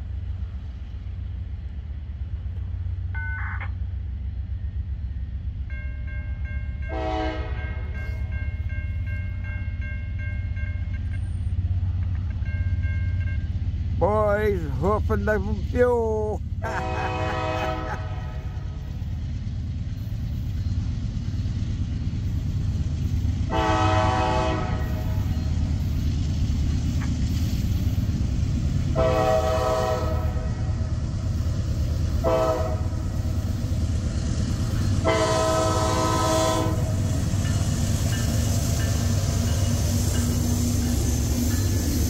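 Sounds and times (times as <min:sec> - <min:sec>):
diesel engines rumbling: 0:00.0 - 0:05.7, 0:10.0 - 0:42.0
locomotive air horn: 0:06.9 - 0:08.2, 0:16.6 - 0:18.8, 0:23.5 - 0:25.2, 0:28.9 - 0:30.7, 0:32.2 - 0:33.0, 0:35.0 - 0:37.0.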